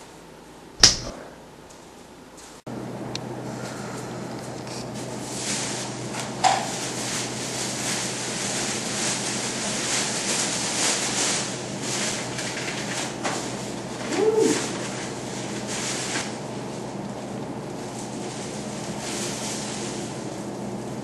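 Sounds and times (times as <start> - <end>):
sharp knock: 0.8 - 1.2
plastic bag rustling: 4.4 - 20.8.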